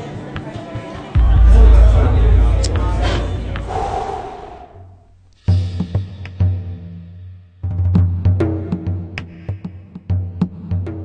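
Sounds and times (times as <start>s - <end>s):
background music with heavy bass: 1.2s - 3.7s.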